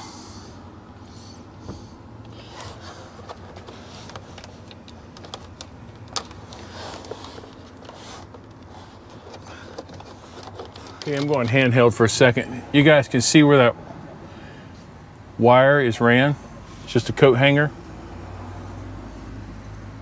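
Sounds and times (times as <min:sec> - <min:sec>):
steady low hum: 0:00.0 - 0:18.0
wire clicks taps and scrapes: 0:03.2 - 0:11.7.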